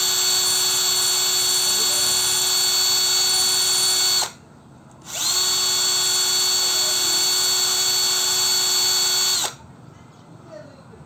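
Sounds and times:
cordless drill whirring: 0:00.0 - 0:04.4, 0:05.0 - 0:09.6
drill bit boring through terracotta: 0:00.0 - 0:04.4, 0:05.0 - 0:09.6.

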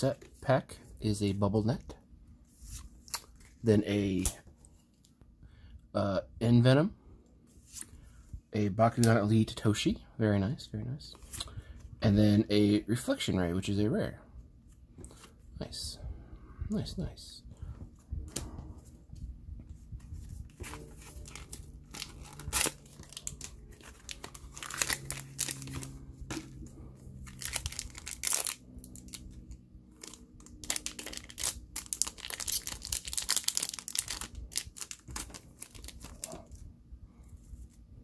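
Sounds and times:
wrapper crinkling and tearing: 0:20.7 - 0:26.6, 0:27.2 - 0:36.6.

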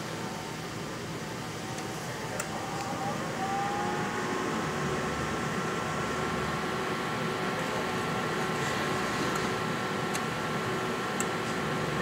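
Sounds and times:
machine fan noise: 0:00.0 - 0:12.0
rising whine: 0:01.5 - 0:07.4.

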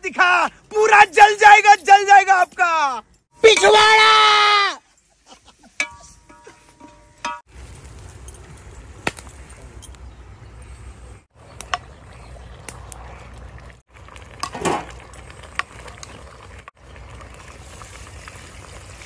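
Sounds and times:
metal ladle clinking on pot: 0:05.8 - 0:07.4.

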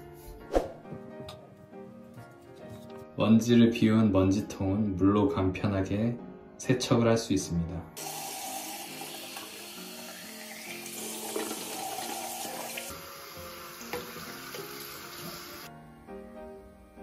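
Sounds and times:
water running from tap: 0:08.0 - 0:15.7.

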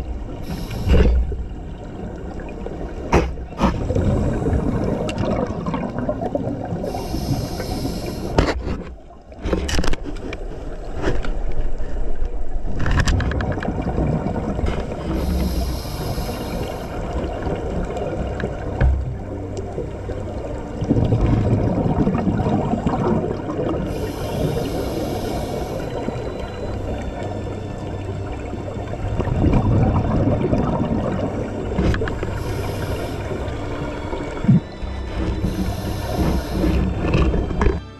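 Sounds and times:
scuba regulator hissing inhalations: 0:00.4 - 0:01.4, 0:06.8 - 0:08.6, 0:15.1 - 0:17.3, 0:23.9 - 0:26.2, 0:32.0 - 0:33.9, 0:35.3 - 0:37.1
bubbling exhaled air: 0:03.5 - 0:08.5, 0:35.3 - 0:37.1.

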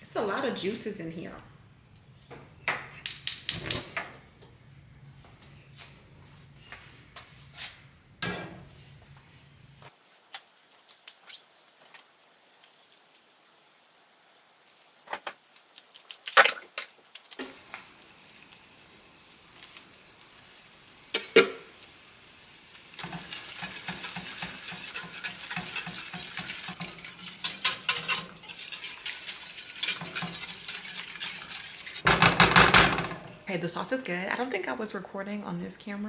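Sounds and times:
pan juices sizzling: 0:10.0 - 0:32.1
utensil scraping pan: 0:23.0 - 0:32.3.

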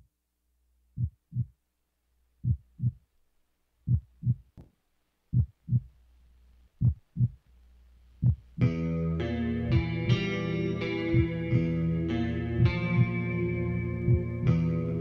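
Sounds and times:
heartbeat double thump: 0:01.0 - 0:01.5, 0:02.4 - 0:03.0, 0:03.9 - 0:04.6, 0:05.3 - 0:05.9, 0:06.8 - 0:07.4, 0:08.2 - 0:08.5, 0:14.1 - 0:14.4.

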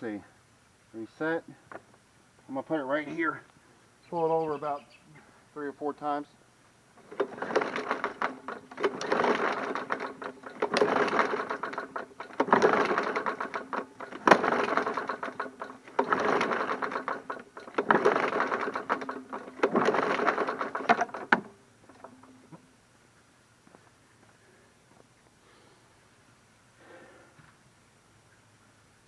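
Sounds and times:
mower engine cranking with ticks: 0:07.0 - 0:22.4
recoil starter rope pulls: 0:07.0 - 0:22.4.

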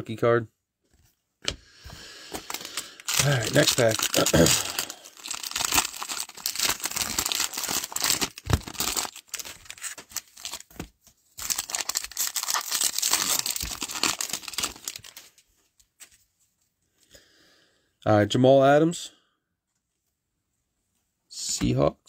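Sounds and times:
foil wrapper crinkling and tearing: 0:02.3 - 0:15.4.

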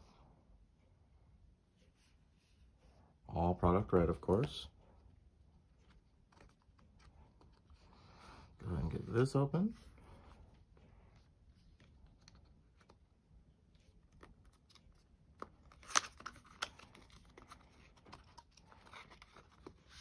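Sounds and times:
cardboard and paper rustling: 0:05.6 - 0:20.0.

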